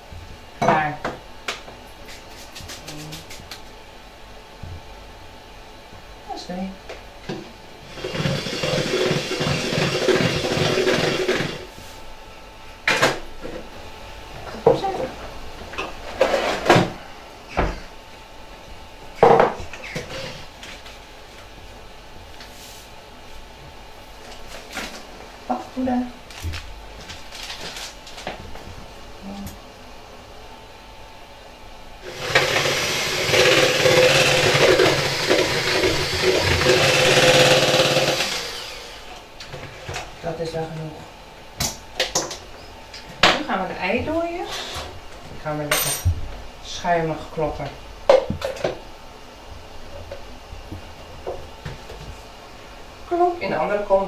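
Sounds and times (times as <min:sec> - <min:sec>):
electric stand mixer running: 0:07.8 - 0:11.7, 0:32.0 - 0:39.3.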